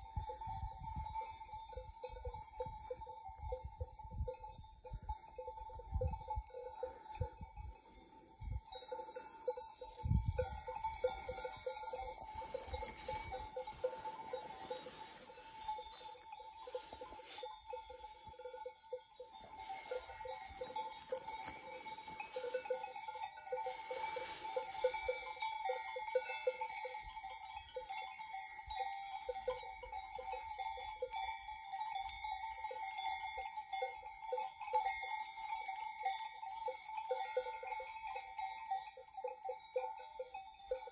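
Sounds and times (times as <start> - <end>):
sheep bells clanking and jingling: 0.0 - 40.9.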